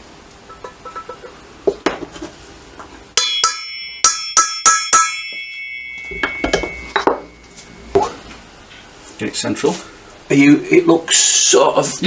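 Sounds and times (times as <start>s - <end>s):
hammer striking steel punch: 3.2s - 7.4s.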